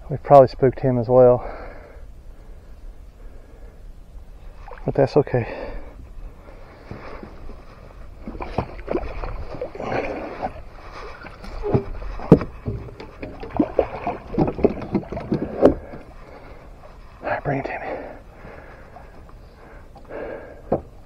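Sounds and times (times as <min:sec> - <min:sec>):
footsteps on fiberglass boat: 0:06.8 - 0:17.1.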